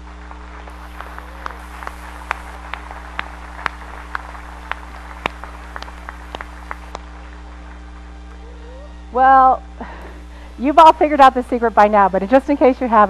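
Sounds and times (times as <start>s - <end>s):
scattered hand claps: 0.0s - 8.4s
electrical mains hum: 0.0s - 13.0s.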